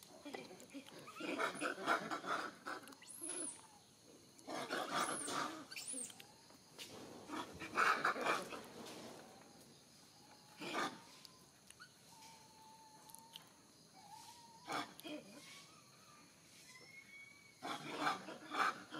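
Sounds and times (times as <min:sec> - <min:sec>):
monkeys barking and squealing: 0:00.8 - 0:06.3, 0:07.3 - 0:08.7, 0:10.5 - 0:13.4, 0:14.0 - 0:18.9.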